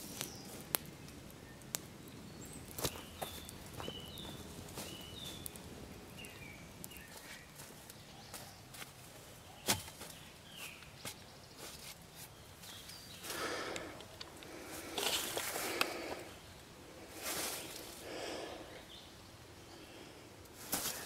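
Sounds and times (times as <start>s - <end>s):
birds chirping: 0.0s - 21.0s
footsteps on leaf litter: 2.7s - 5.6s, 6.2s - 13.5s
rustling: 2.7s - 16.3s, 17.1s - 18.1s, 20.5s - 21.0s.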